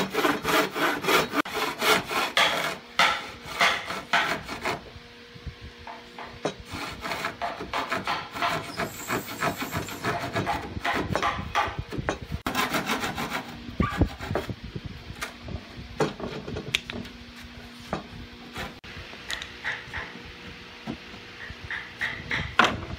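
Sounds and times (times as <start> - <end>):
hand saw cutting wood: 0.0 - 4.9, 6.5 - 11.8, 12.4 - 14.5.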